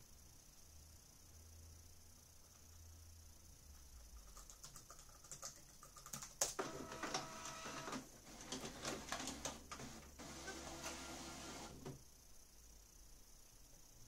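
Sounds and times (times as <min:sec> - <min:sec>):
laptop keyboard typing: 0:04.1 - 0:11.8
printer mechanism clicks: 0:06.4 - 0:12.0
printer motors whirring: 0:06.6 - 0:12.0.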